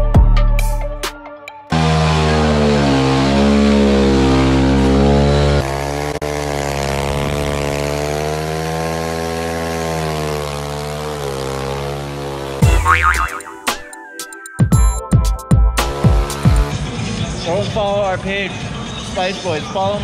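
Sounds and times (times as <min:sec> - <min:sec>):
small motorbike engine revving: 0:01.7 - 0:13.4, 0:15.8 - 0:17.2.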